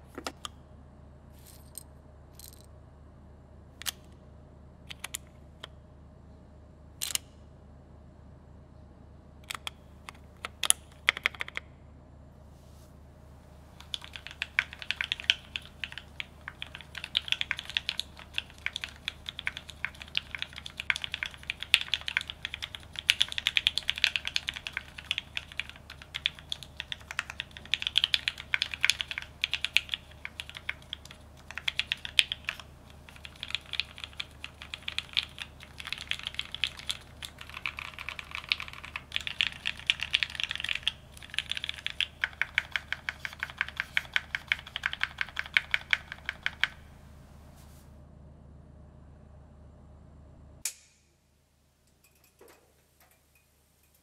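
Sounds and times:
mechanical keyboard typing: 4.9s - 5.2s, 10.4s - 11.6s, 13.8s - 46.9s.

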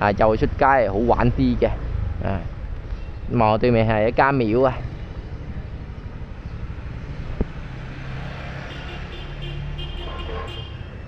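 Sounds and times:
street traffic: 0.0s - 11.0s
vehicle engine running: 4.6s - 10.2s.

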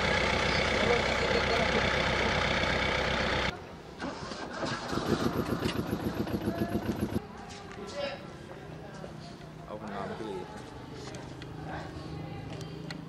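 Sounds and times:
bus engine idling: 0.0s - 7.2s
fast even pulsing: 4.7s - 7.2s.

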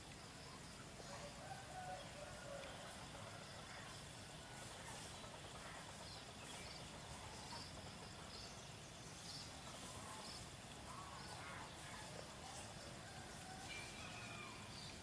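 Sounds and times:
low hiss: 0.0s - 15.0s.

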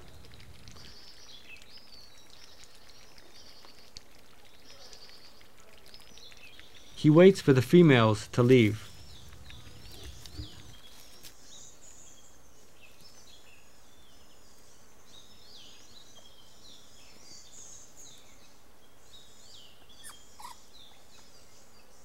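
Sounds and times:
steady outdoor hiss: 0.0s - 22.0s
birds chirping and whistling: 8.0s - 12.3s, 19.1s - 21.9s.

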